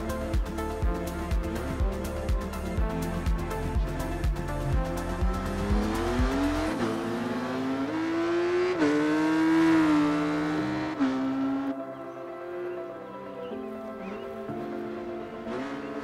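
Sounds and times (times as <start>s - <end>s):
music with steady beat: 0.0s - 7.2s
motorcycle engine revving: 5.2s - 11.8s.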